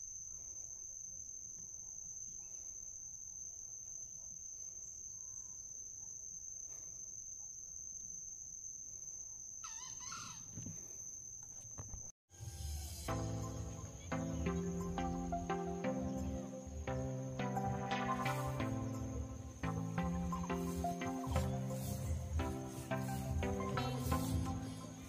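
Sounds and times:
insects droning: 0.0 - 25.0
rooster crowing: 9.6 - 10.7, 12.3 - 13.1.

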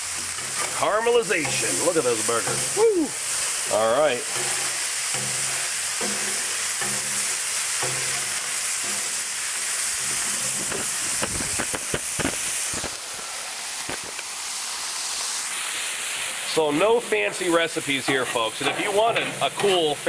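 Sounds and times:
burger patties sizzling on griddle: 0.0 - 20.0
spatula scraping griddle: 0.3 - 13.0, 16.8 - 20.0.

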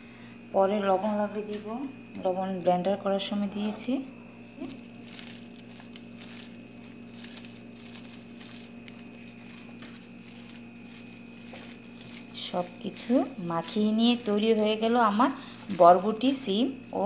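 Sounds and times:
gloved hand mashing food: 4.6 - 17.0.

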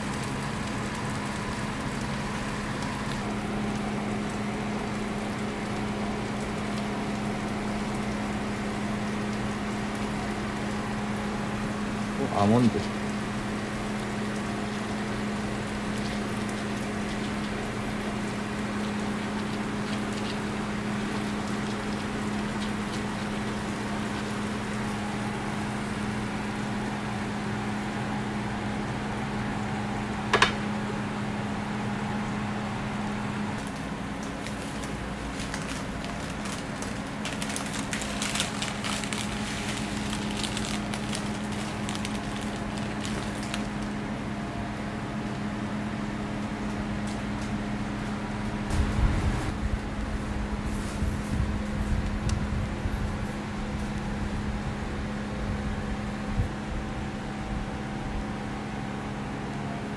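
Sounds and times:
machine hum: 0.0 - 59.9
paper wrapper crinkling: 33.6 - 44.0.

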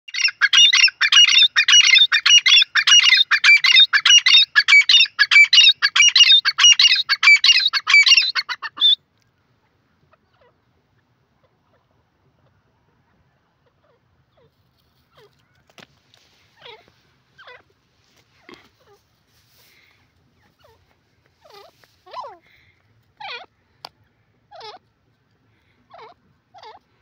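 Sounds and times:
bird calling high repeated notes: 0.1 - 9.0.

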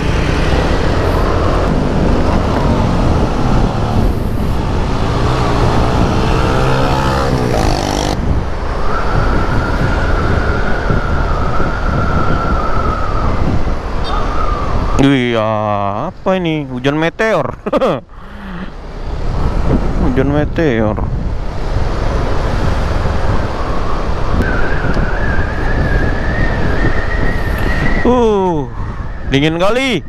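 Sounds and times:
motorcycle engine accelerating: 0.0 - 8.4
road and wind noise: 0.0 - 30.0.

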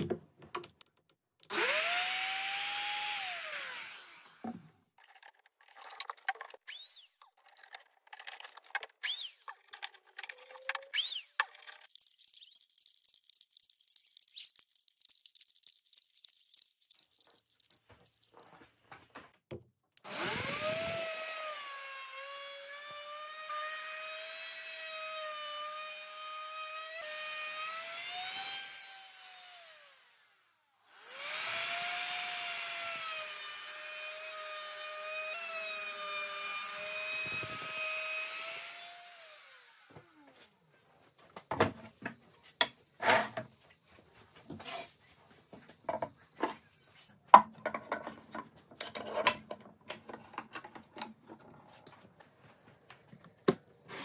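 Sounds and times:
router motor whine: 1.5 - 4.7, 20.1 - 24.8, 28.2 - 40.3
router bit cutting wood: 1.5 - 4.8, 10.9 - 12.5, 20.0 - 30.3, 30.9 - 40.3
irregular clicking and rubbing: 5.0 - 19.1.

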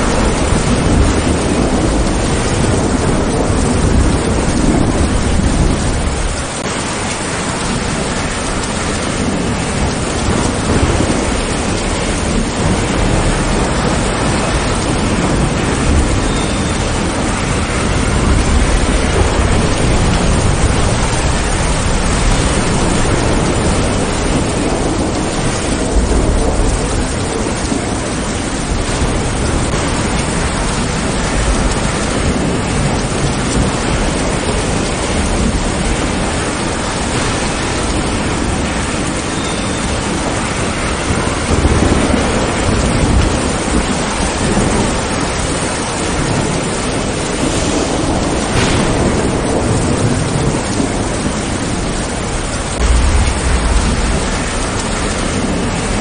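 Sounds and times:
heavy rain: 0.0 - 56.0
thunder rumbling: 0.0 - 56.0.

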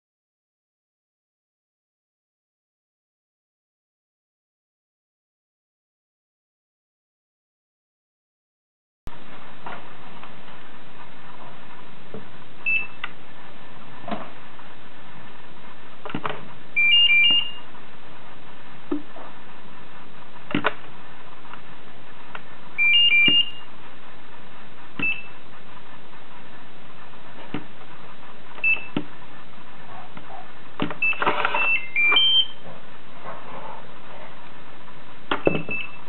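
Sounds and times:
digital door lock beeping: 12.6 - 13.0, 16.8 - 17.6, 22.8 - 23.6, 25.0 - 25.4, 28.6 - 29.0, 31.0 - 32.6, 35.4 - 36.0
chirps of alternating tones: 12.6 - 13.2, 16.7 - 17.8, 22.3 - 23.8, 24.9 - 26.1, 28.1 - 30.2, 30.9 - 32.8, 35.4 - 36.0.

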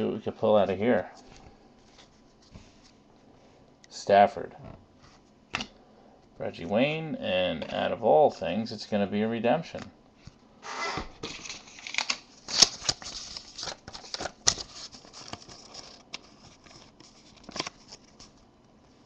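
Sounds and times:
cards and paper rustling: 11.3 - 18.4.

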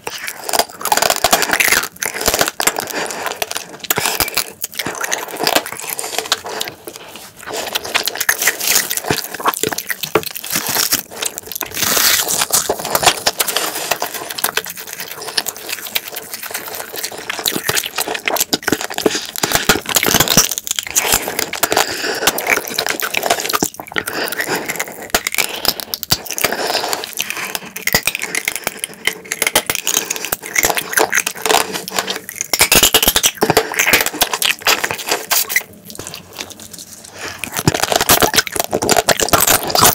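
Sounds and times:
small crackles and clicks: 0.0 - 39.9
wet chewing and sucking: 0.0 - 39.9.

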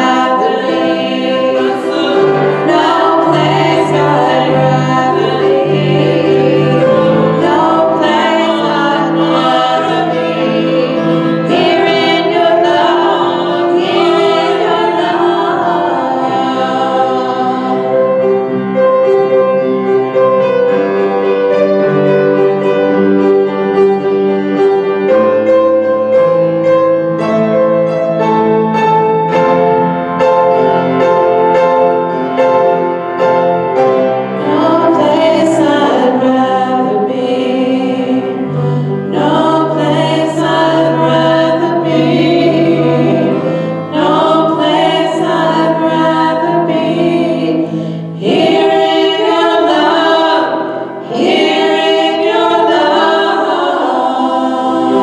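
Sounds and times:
women singing: 0.0 - 18.4, 34.4 - 55.0
grand piano: 0.0 - 55.0.

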